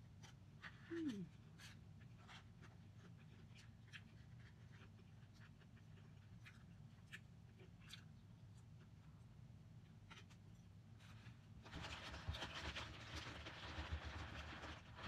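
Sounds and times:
scratchy rustling and scraping: 0.1 - 8.1, 11.0 - 15.0.

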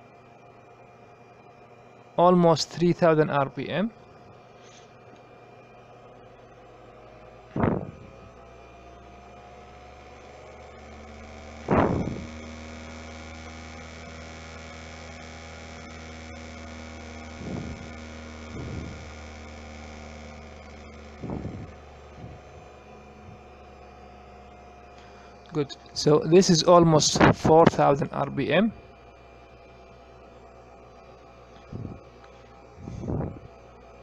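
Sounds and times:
electric motor humming and whining: 0.0 - 34.0
loud short thumps: 7.5 - 8.1, 11.7 - 12.3, 21.2 - 22.4.

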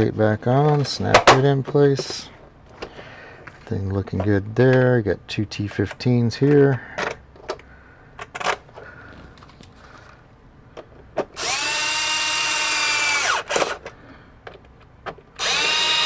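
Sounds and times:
cordless screwdriver motor whine: 11.4 - 13.6, 15.4 - 16.0.

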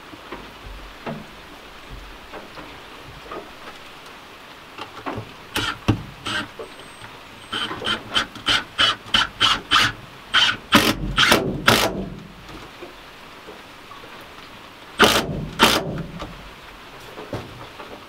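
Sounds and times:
cordless drill drilling into wood: 5.6 - 6.6, 7.5 - 12.0, 15.0 - 15.9.

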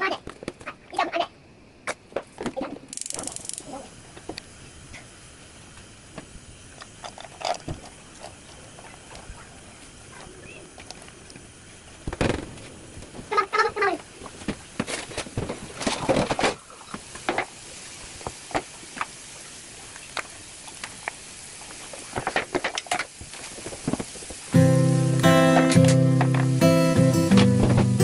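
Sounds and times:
vegetable pieces landing in a pan: 12.0 - 13.3.

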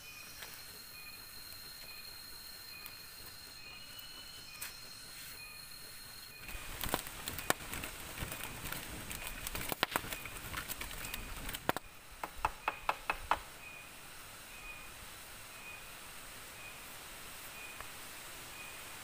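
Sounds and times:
steady fire hiss: 0.0 - 12.5, 13.1 - 19.0
campfire crackling and popping: 6.4 - 13.5.

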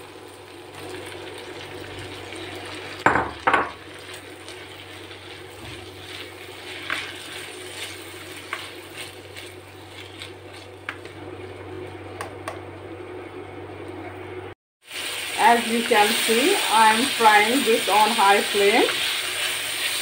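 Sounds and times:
vegetables sizzling in a pan: 0.0 - 11.6, 14.8 - 20.0
bowl knocking on a pan: 3.0 - 3.8
spoon scraping vegetables in a pan: 3.3 - 11.2.

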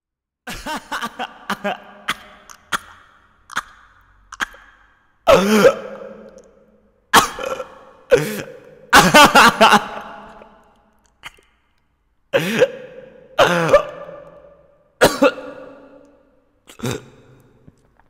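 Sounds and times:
person coughing: 0.5 - 3.0, 5.3 - 6.3, 7.1 - 10.0, 12.3 - 16.1, 16.7 - 17.3.

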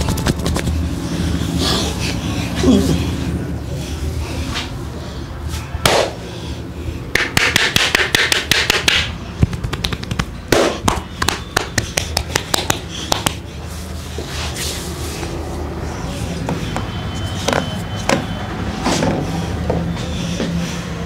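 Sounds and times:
hands rubbing hair and scalp: 9.4 - 10.4.

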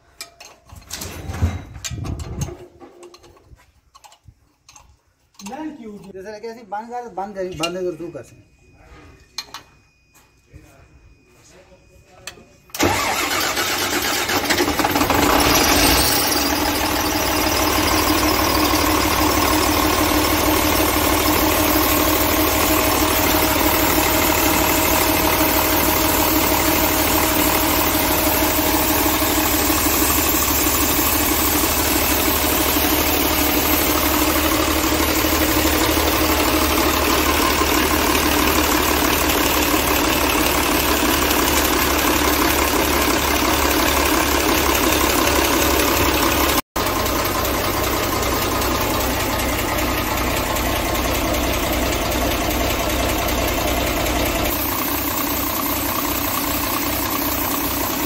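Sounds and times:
diesel engine starting and idling: 12.7 - 58.0.

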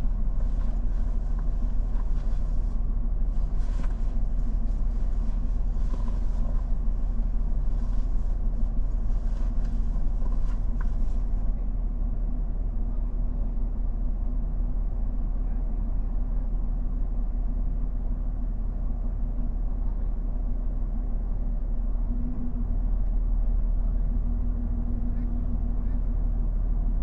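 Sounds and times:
faint ticks and crackles: 0.0 - 11.6
pickup engine idling: 0.0 - 11.6.

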